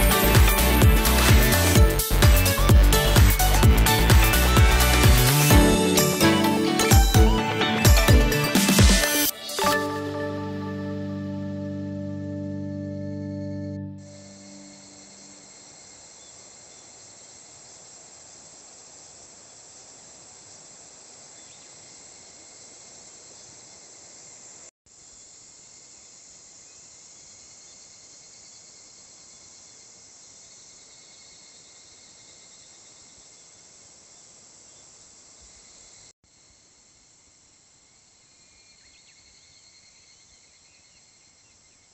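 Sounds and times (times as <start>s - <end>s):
insects chorus: 14.0s - 41.9s.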